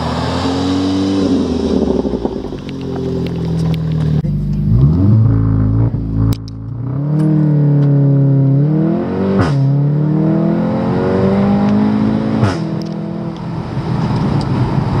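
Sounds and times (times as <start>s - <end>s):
car engine accelerating: 0.0s - 15.0s
exhaust cracks: 1.3s - 8.0s.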